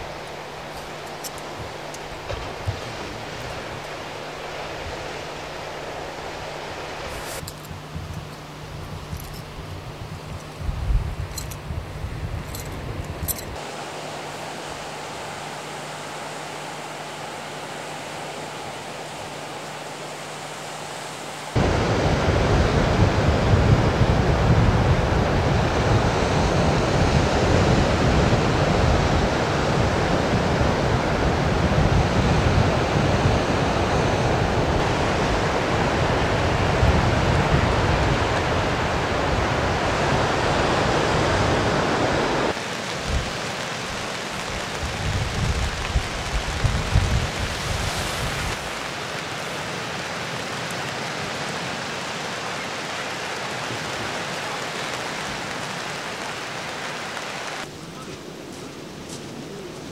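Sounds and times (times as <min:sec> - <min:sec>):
sea surf: 0:00.0 - 0:07.5, 0:13.3 - 0:59.9
wind rumbling on microphone: 0:00.0 - 0:13.6, 0:17.9 - 0:59.9
faint steady hiss: 0:00.0 - 0:27.0.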